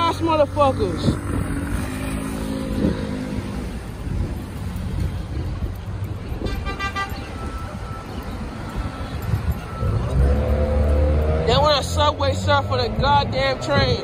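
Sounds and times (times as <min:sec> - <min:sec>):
traffic rumble: 0:00.0 - 0:14.0
car horn toot: 0:06.4 - 0:07.8.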